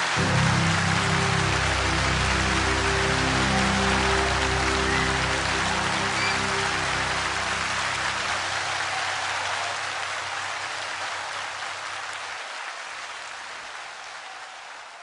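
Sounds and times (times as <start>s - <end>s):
music held notes: 0.0s - 10.7s
audience applause: 0.0s - 15.0s.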